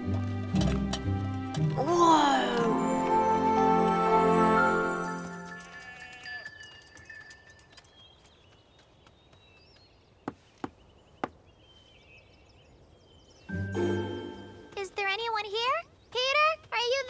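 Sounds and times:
background music: 0:00.0 - 0:05.8, 0:13.5 - 0:14.9
faint birdsong: 0:06.6 - 0:17.0.

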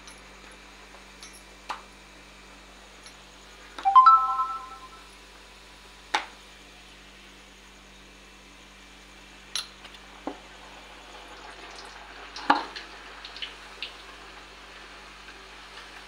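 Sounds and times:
food sizzling in hot oil: 0:10.5 - 0:16.0.

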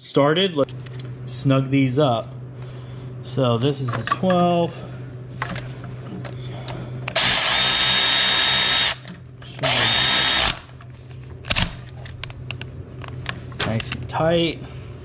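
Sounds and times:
cordless ratchet whirring: 0:07.1 - 0:10.8.

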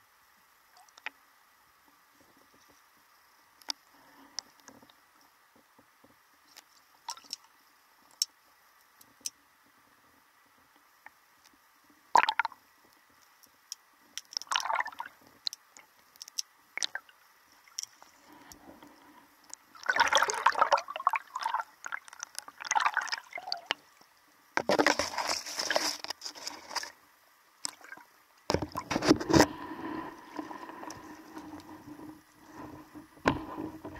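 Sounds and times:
faint underwater clicks: 0:00.7 - 0:01.2, 0:01.8 - 0:09.4, 0:10.4 - 0:20.7, 0:21.4 - 0:27.0
gurgling sloshing water: 0:14.4 - 0:15.6, 0:16.8 - 0:23.9, 0:27.6 - 0:33.9.

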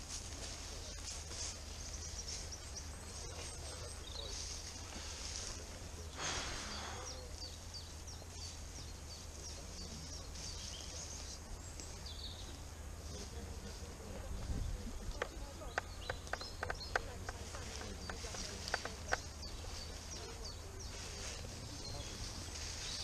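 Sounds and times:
small birds chirping: 0:00.0 - 0:23.0
brief rushing hiss: 0:06.1 - 0:07.2.

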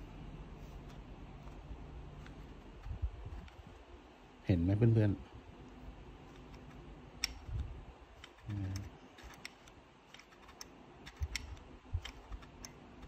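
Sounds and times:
plastic and metal parts clicking: 0:06.3 - 0:13.0.

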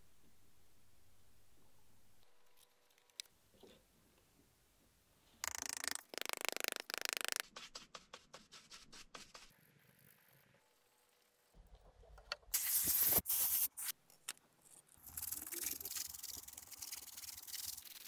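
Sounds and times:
paintbrush scratching: 0:06.4 - 0:09.5, 0:12.5 - 0:14.0, 0:14.7 - 0:18.0.

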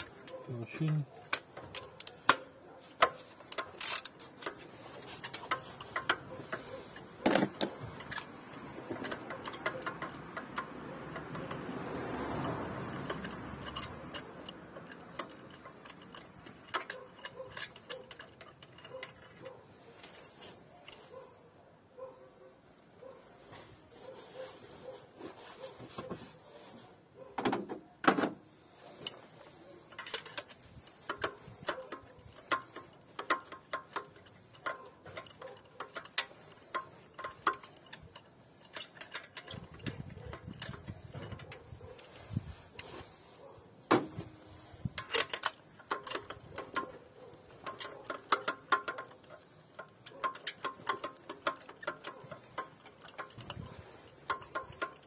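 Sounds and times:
socket ratchet clicking: 0:01.2 - 0:19.6, 0:29.8 - 0:41.6, 0:44.8 - 0:55.0.

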